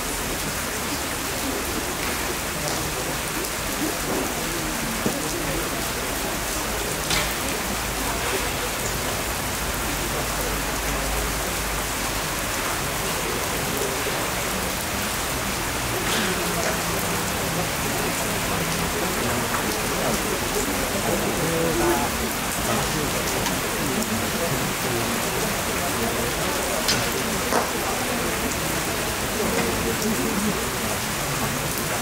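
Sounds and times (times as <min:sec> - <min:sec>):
steady rain hissing: 0:00.0 - 0:32.0.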